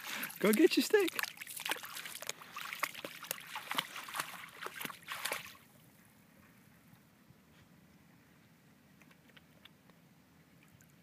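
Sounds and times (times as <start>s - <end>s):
dog paws splashing in water: 0.0s - 5.7s.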